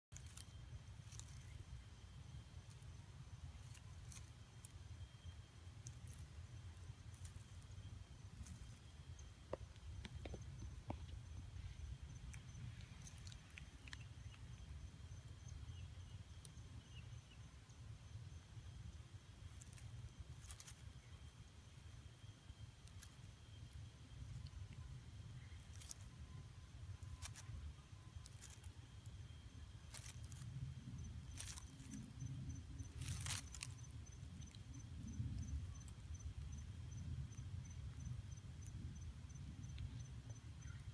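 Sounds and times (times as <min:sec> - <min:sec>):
low wind rumble: 0:00.0 - 0:40.9
dry leaves rustling: 0:00.1 - 0:01.7, 0:02.6 - 0:04.8, 0:05.7 - 0:08.8, 0:19.5 - 0:20.9, 0:22.8 - 0:23.3, 0:25.5 - 0:26.1, 0:26.8 - 0:29.2, 0:29.8 - 0:34.6
high-pitched insect trill: 0:00.1 - 0:40.9.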